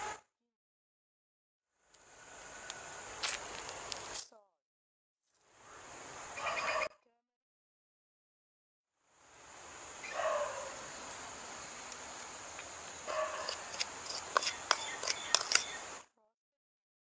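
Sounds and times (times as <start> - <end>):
insect drone: 1.8 - 4.2, 5.4 - 6.9, 9.0 - 16.1
fowl calling: 6.3 - 7.0.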